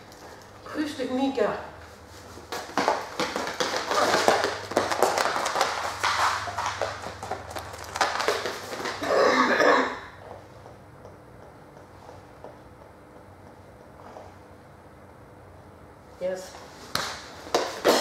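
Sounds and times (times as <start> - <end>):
low steady hum: 0.0 - 18.0
dog claws clicking on hard floor: 2.5 - 9.1.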